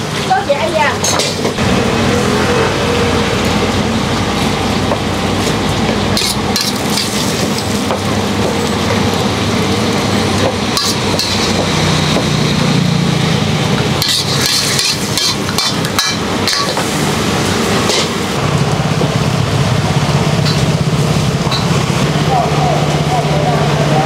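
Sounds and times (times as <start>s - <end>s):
wok burner hissing: 0.0s - 23.8s
metal ladle scraping a wok: 6.2s - 7.7s, 10.7s - 12.0s, 13.8s - 17.2s.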